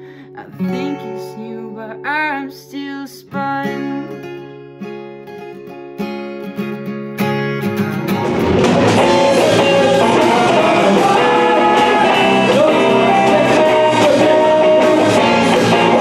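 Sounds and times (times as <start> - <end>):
acoustic guitar strummed and picked: 0.0 - 16.0
young man singing: 0.4 - 4.1, 8.9 - 16.0.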